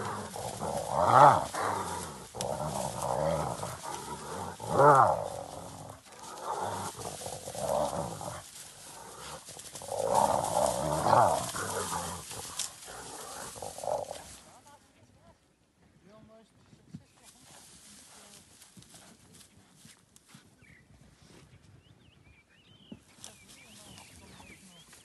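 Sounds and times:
hyena and wild dogs fighting: 0.0s - 14.7s.

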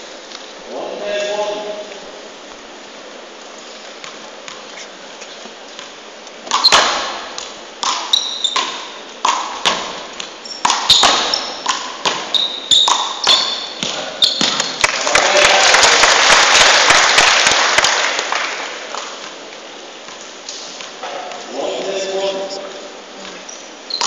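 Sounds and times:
applause: 14.8s - 19.0s.

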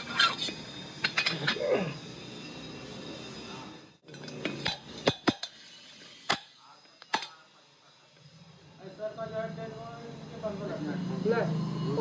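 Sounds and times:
metal tools clinking on metal: 0.0s - 2.0s, 4.0s - 7.5s
sharp metal clinks: 0.0s - 7.9s.

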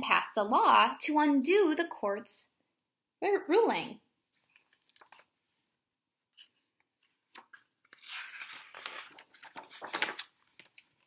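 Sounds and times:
picture book rustling: 4.3s - 11.0s.

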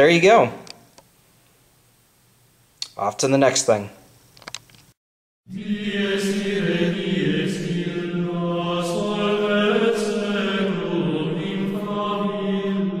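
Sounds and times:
low chanting voices: 5.5s - 13.0s.

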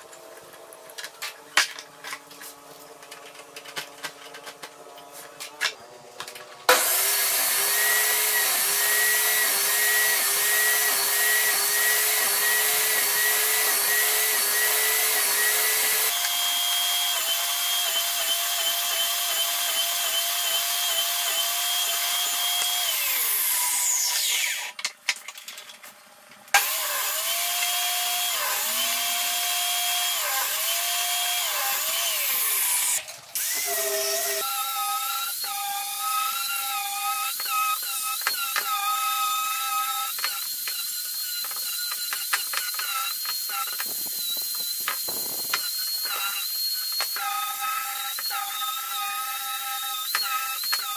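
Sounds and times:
table saw cutting wood: 0.0s - 24.8s, 26.6s - 50.9s
angle grinder sanding wood: 6.7s - 24.7s, 26.6s - 48.9s.

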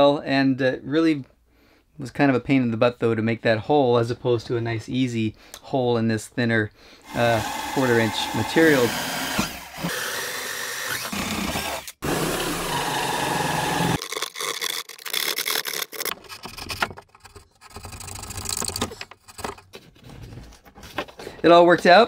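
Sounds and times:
cordless drill boring into wood: 7.1s - 16.1s
scraping and cutting by hand: 7.1s - 20.4s.

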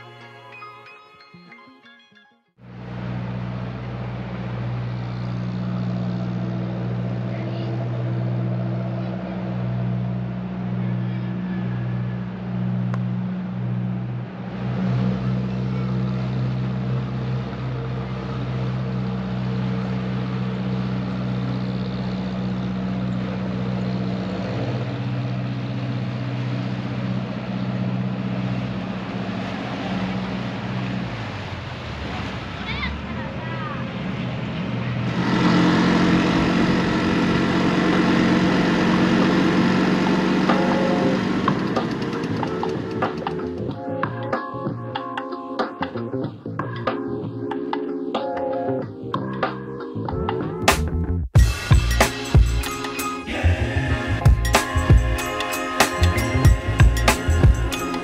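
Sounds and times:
ferry engine humming: 2.6s - 44.3s, 50.0s - 58.0s.

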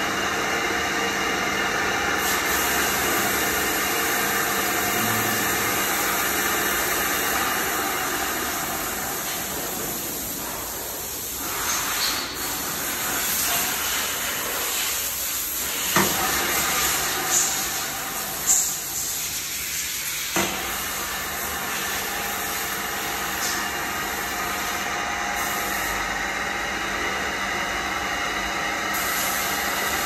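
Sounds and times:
milling machine whirring: 0.0s - 9.2s.

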